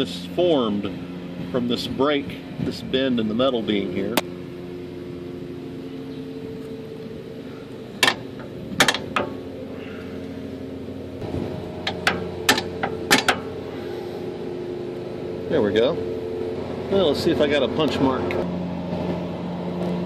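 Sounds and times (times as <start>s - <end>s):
low mechanical hum: 0.0s - 20.0s
hammer striking metal punch: 11.8s - 13.5s.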